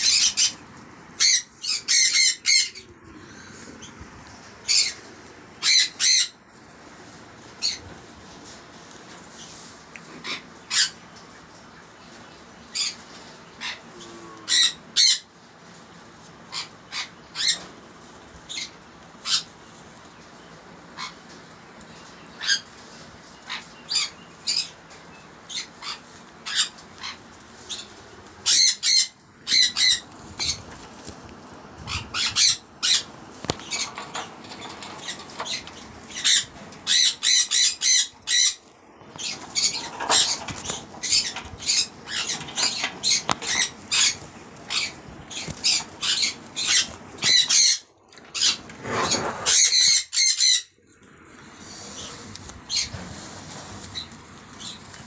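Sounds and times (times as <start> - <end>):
parrots squawking: 0.0 - 3.9, 4.6 - 6.4, 7.6 - 7.9, 10.1 - 11.0, 12.7 - 15.3, 16.4 - 17.7, 21.0 - 21.3, 22.4 - 22.7, 23.4 - 24.8, 25.5 - 31.2, 31.8 - 50.8, 51.7 - 55.0.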